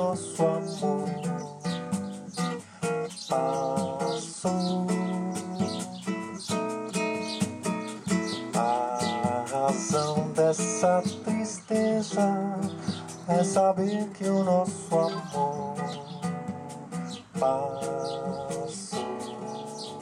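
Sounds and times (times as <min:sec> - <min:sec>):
acoustic guitar playing: 0:00.0 - 0:20.0
hand drum beating rhythm: 0:00.0 - 0:20.0.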